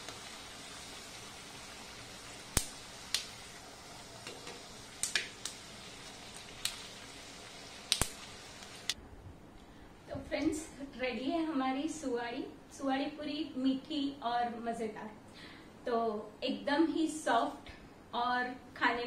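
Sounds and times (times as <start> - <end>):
frying sizzle: 0.0 - 9.0
oil clicks and pops: 4.2 - 5.6, 6.5 - 6.9, 7.9 - 8.3.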